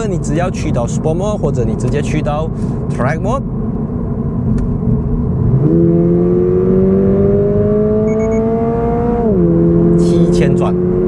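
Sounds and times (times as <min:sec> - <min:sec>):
car engine accelerating: 0:03.9 - 0:11.0
short beeps: 0:08.1 - 0:08.5.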